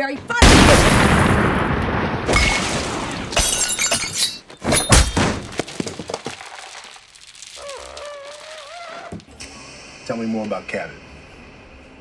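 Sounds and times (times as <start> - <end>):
glass and crockery breaking: 2.3 - 8.0.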